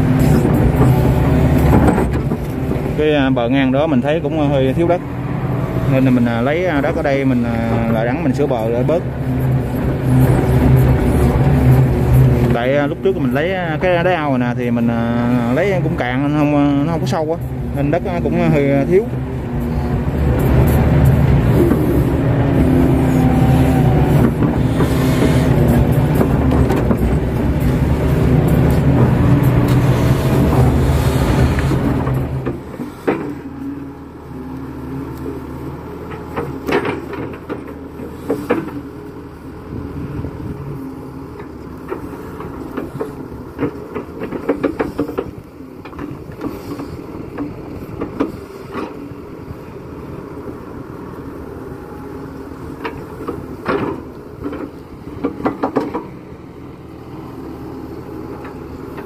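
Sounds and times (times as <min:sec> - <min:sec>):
excavator diesel engine running: 0:00.0 - 0:59.0
excavator bucket knocks and clanks: 0:00.3 - 0:03.0, 0:24.1 - 0:33.5, 0:36.0 - 0:38.8, 0:41.8 - 0:48.9, 0:52.8 - 0:56.2.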